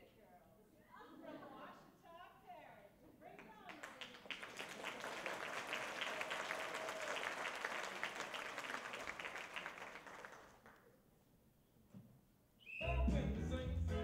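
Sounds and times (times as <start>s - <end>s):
audience applauding: 3.6s - 10.8s.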